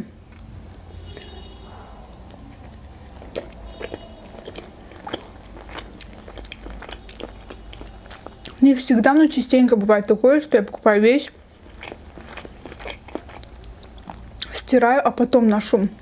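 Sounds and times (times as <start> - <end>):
mouth clicks and smacks: 0.0 - 8.6
person chewing: 0.0 - 8.9, 10.6 - 14.6.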